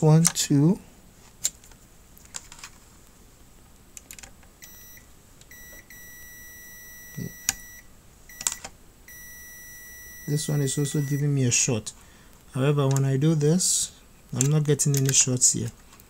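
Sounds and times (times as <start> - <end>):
multimeter beeping: 4.6 - 11.4.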